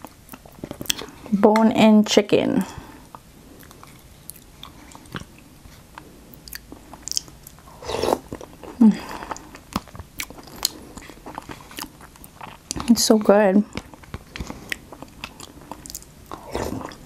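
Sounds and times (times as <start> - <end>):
chewing: 3.1 - 13.0, 13.6 - 17.0.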